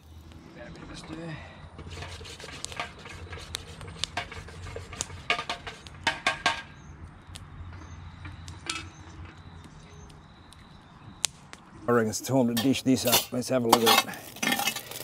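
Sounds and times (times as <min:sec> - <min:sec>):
metal lid clanking: 0:04.2 - 0:06.7, 0:08.2 - 0:09.4, 0:12.5 - 0:14.8
metal spoon clinking in pot: 0:12.6 - 0:14.8.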